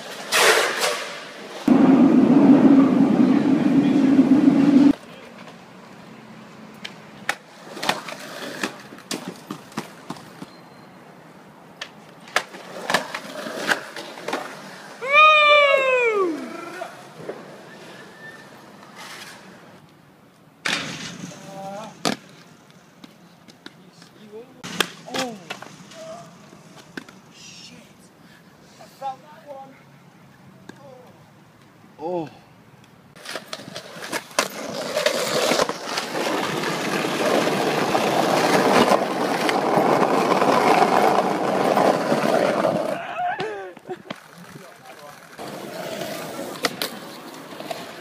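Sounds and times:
skateboard wheels rolling on concrete: 0:00.0 - 0:48.0
person shouting: 0:15.0 - 0:16.9, 0:43.0 - 0:43.8
skateboard landing clack: 0:20.6 - 0:21.4.

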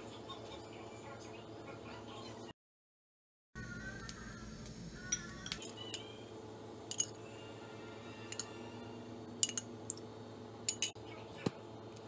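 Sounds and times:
steady low hum: 0:03.6 - 0:12.0.

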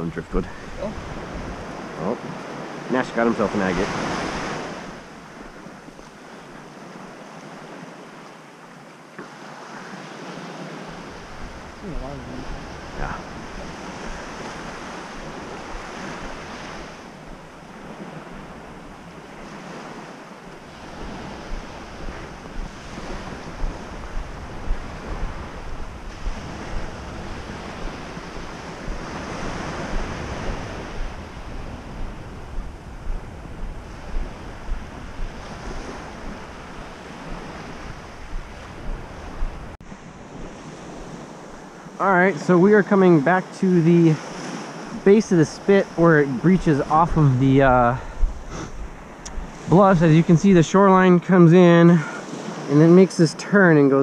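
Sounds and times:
wind buffeting microphone: 0:00.0 - 0:07.8, 0:10.2 - 0:42.8, 0:44.2 - 0:51.2
waves washing onto beach: 0:00.0 - 0:54.0
regular soft thumps: 0:21.5 - 0:39.8, 0:48.0 - 0:49.5.

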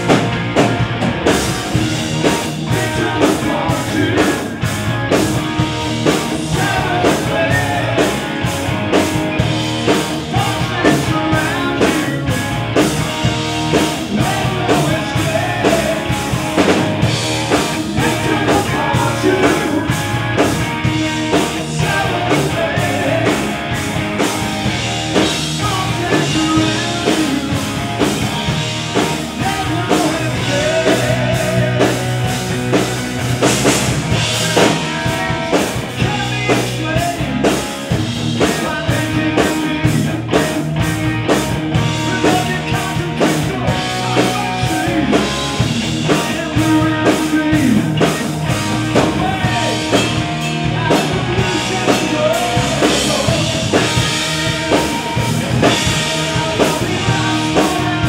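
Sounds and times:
drum beat: 0:00.0 - 0:37.0
electric guitars and bass: 0:00.0 - 0:58.0
male vocal singing: 0:02.6 - 0:04.6, 0:06.4 - 0:08.3, 0:10.2 - 0:12.4, 0:13.8 - 0:16.2, 0:17.8 - 0:20.2, 0:21.3 - 0:23.5, 0:25.6 - 0:27.8, 0:29.3 - 0:32.1, 0:34.5 - 0:37.6, 0:38.4 - 0:40.6, 0:42.0 - 0:48.3, 0:49.0 - 0:58.0.

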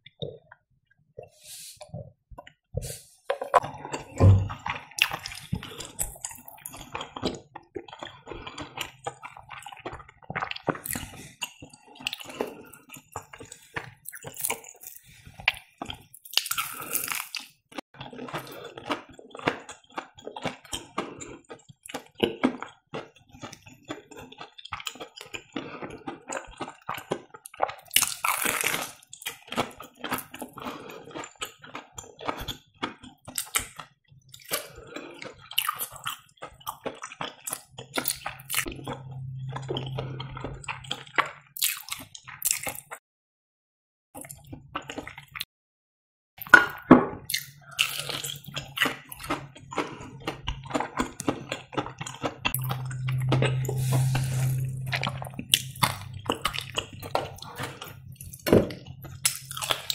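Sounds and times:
wet chewing: 0:03.5 - 0:43.0, 0:46.4 - 0:59.9
crunching fried crust: 0:04.8 - 0:38.7, 0:55.5 - 0:59.9
low steady hum: 0:38.5 - 0:41.0, 0:52.5 - 0:59.4.

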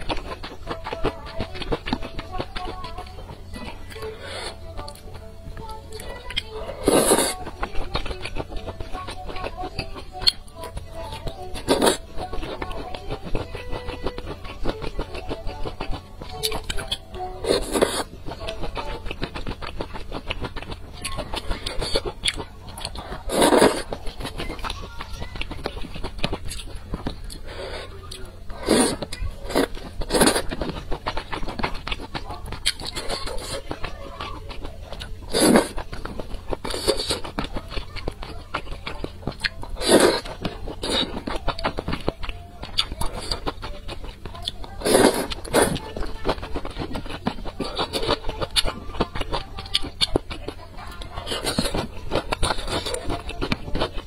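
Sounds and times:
chewing and wet mouth sounds: 0:00.0 - 0:54.0.

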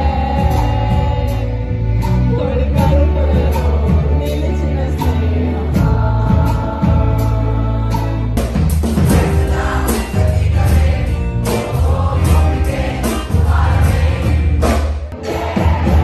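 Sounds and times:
strong bass line: 0:05.8 - 0:16.0
many voices singing together: 0:09.0 - 0:16.0.

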